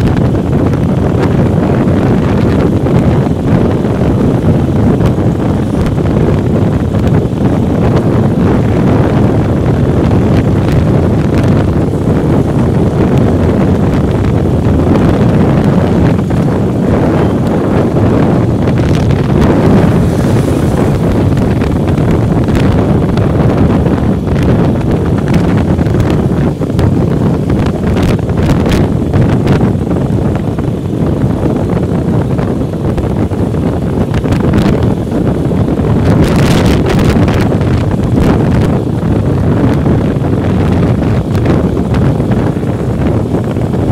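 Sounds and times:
motorcycle running: 0:00.0 - 0:43.9
wind buffeting microphone: 0:00.0 - 0:43.9.

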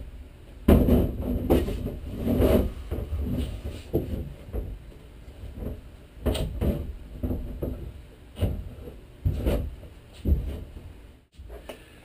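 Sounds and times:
dull thumps on wooden cabin: 0:00.7 - 0:04.8, 0:05.5 - 0:10.8.

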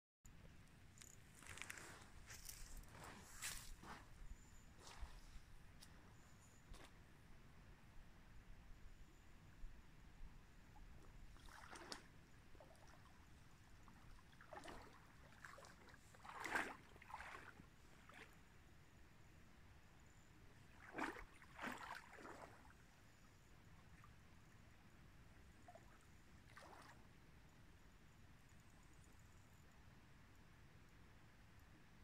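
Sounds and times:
water splashing around wading legs: 0:11.3 - 0:13.1, 0:14.2 - 0:18.2, 0:20.8 - 0:22.7, 0:26.5 - 0:27.0.

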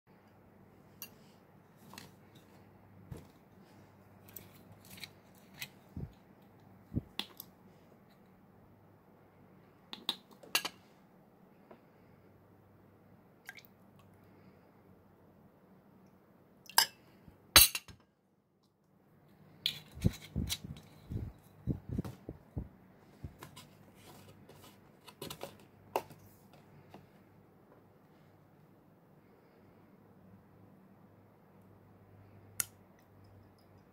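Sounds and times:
soft low thumps: 0:21.0 - 0:23.4.

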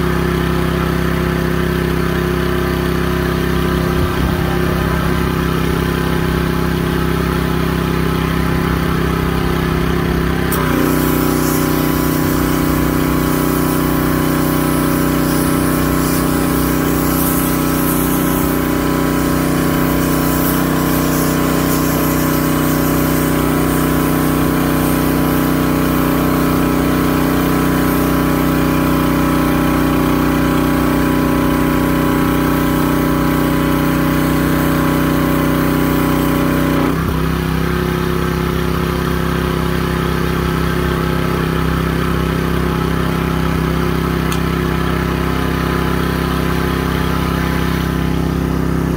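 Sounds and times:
pressure washer engine running: 0:00.0 - 0:48.9
water spray hissing: 0:09.0 - 0:36.8.

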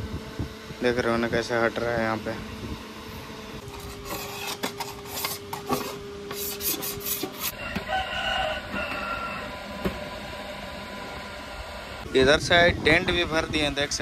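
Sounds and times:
sticker being scraped off: 0:03.6 - 0:07.5.

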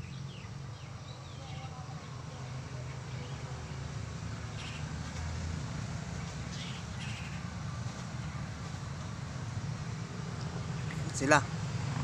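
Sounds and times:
vehicle humming on road: 0:00.0 - 0:12.0
short bird calls: 0:04.6 - 0:04.9, 0:06.5 - 0:07.5.

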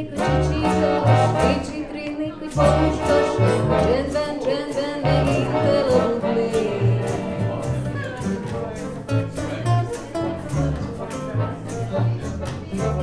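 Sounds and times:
accordion melody: 0:00.0 - 0:13.0
hand drum: 0:00.0 - 0:13.0
plucked double bass: 0:00.0 - 0:13.0
strummed acoustic guitar: 0:00.0 - 0:13.0.

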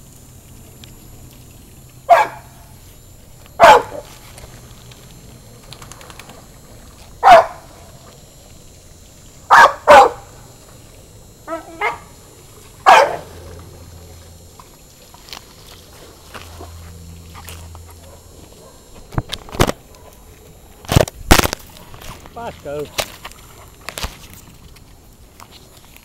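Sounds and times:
dog barking: 0:02.1 - 0:02.6, 0:03.6 - 0:04.1, 0:07.2 - 0:07.7, 0:09.5 - 0:10.2, 0:11.5 - 0:12.1, 0:12.8 - 0:13.3, 0:18.0 - 0:18.9.

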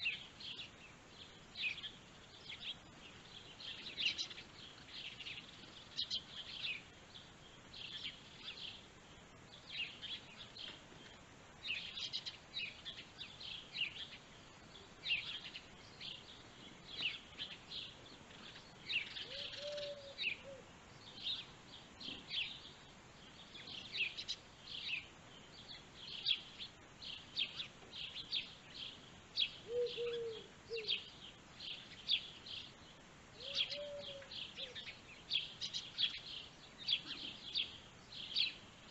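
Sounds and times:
songbirds chirping: 0:00.0 - 0:38.9
short low bird calls: 0:17.8 - 0:21.5, 0:29.4 - 0:31.2, 0:33.4 - 0:35.0.

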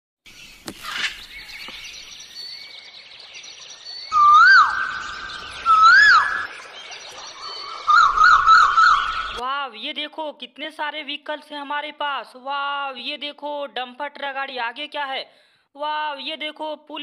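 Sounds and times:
birds chirping: 0:00.3 - 0:09.4
electronic siren whoops: 0:04.1 - 0:06.5.

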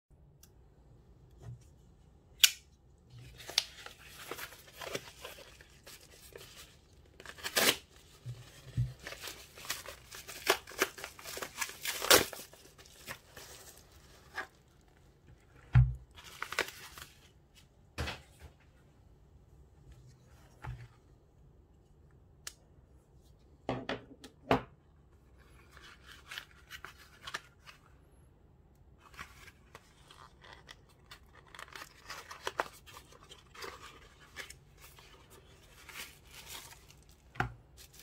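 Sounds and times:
paper tearing and crinkling: 0:03.2 - 0:08.0, 0:09.0 - 0:14.6, 0:29.1 - 0:37.2.

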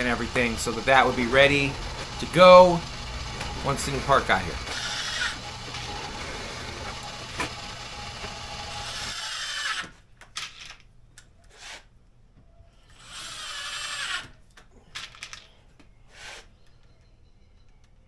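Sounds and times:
drill press boring into wood: 0:00.0 - 0:09.9
cordless drill driving screws: 0:00.0 - 0:10.0.

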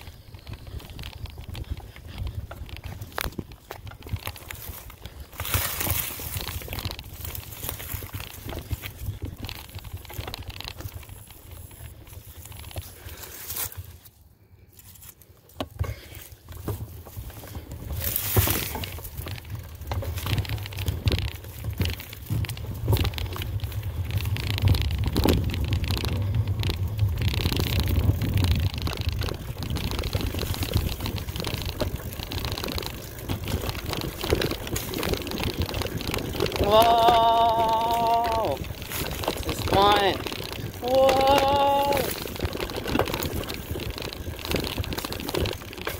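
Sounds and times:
bike tyres rattling over ground: 0:00.0 - 0:45.9.

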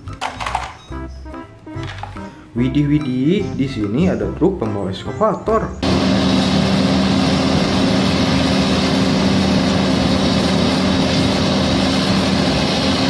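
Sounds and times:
excavator diesel engine running: 0:05.8 - 0:13.0.

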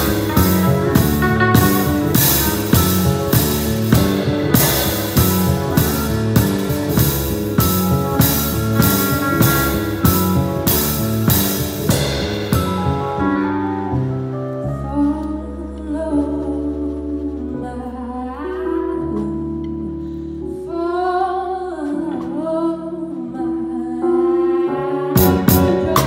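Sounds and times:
keyboard chords: 0:00.0 - 0:17.0
bass line: 0:00.0 - 0:20.0, 0:25.2 - 0:26.0.

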